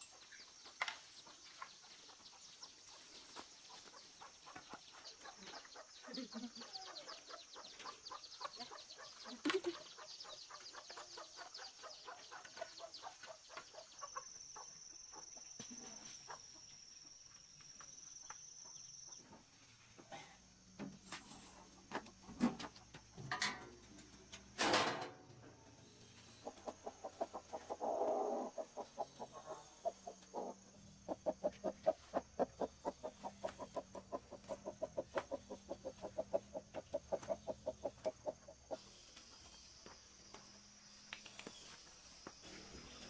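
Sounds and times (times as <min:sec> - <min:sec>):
farm animal clucking calls: 0:03.6 - 0:15.4, 0:26.4 - 0:38.8.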